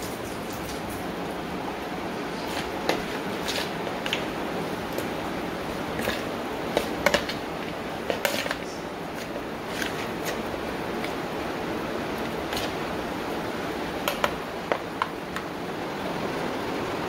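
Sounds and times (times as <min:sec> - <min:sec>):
steady background hiss: 0:00.0 - 0:17.0
meat mixing clicks and taps: 0:02.3 - 0:15.6.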